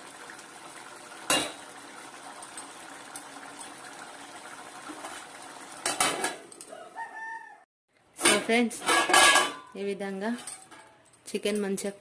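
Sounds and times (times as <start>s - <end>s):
curry bubbling in a pot: 0.0s - 5.9s
metal lid clattering onto pot: 8.2s - 9.7s.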